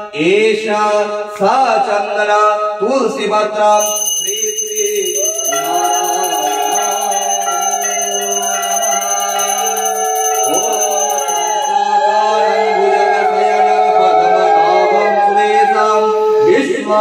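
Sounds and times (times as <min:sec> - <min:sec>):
hand bell ringing: 0:03.8 - 0:11.8
voices rising and falling: 0:03.8 - 0:16.7.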